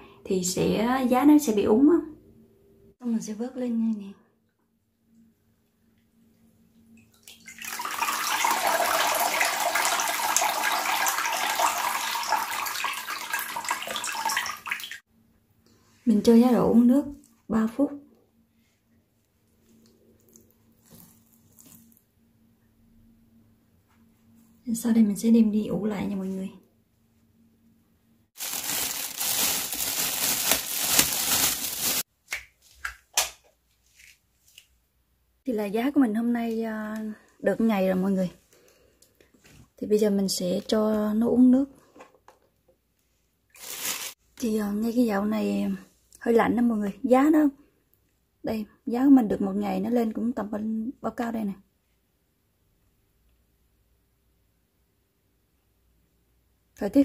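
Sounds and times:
water pouring into plastic basin: 7.0 - 15.0
plastic bag crinkling: 28.4 - 32.1, 43.5 - 44.2.

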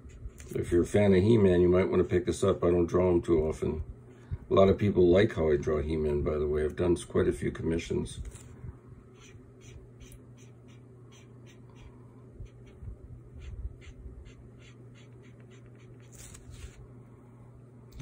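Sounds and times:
steady low hum: 0.0 - 18.0
pen scratching on paper: 9.1 - 16.8.

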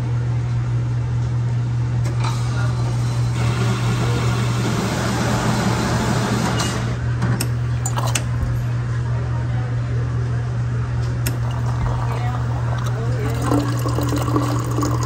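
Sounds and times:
diesel engine humming: 11.2 - 15.0.

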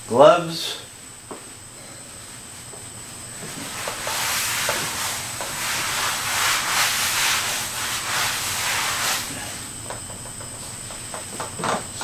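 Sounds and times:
hands rustling and rubbing: 3.4 - 9.3.

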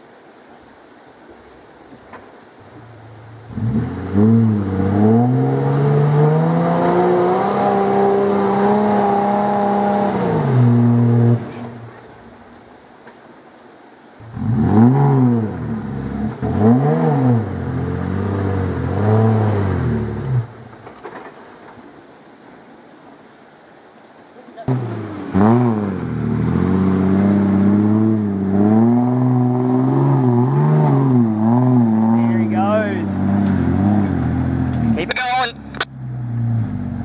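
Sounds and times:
engine revving under load: 3.4 - 12.1, 14.2 - 20.6, 24.7 - 37.0.

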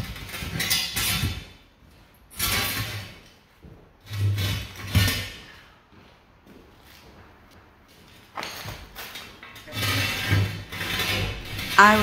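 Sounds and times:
metal liner scraping on masonry: 9.1 - 12.0.

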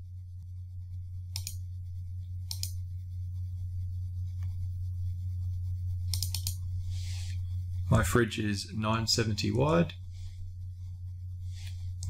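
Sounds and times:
low electrical hum: 0.0 - 12.0
computer mouse clicking: 1.3 - 1.6, 2.4 - 2.8, 6.1 - 6.6.

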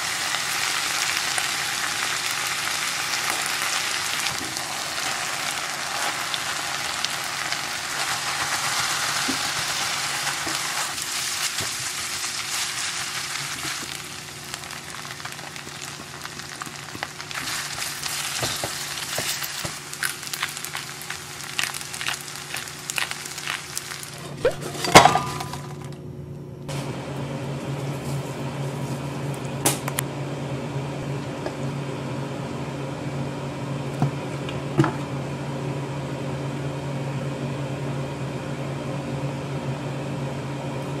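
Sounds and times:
fried rice sizzling: 0.0 - 25.8
steady fan-like hum: 0.0 - 41.0
spatula clicking and scraping: 17.4 - 24.4.

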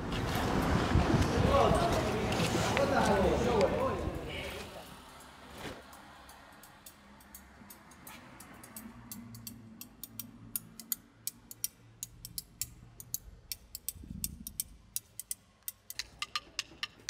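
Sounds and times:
sharp percussive clicks: 5.9 - 17.0.

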